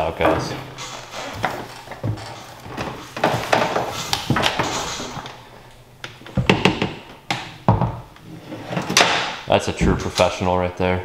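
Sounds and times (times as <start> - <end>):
low thuds: 0.0 - 3.2.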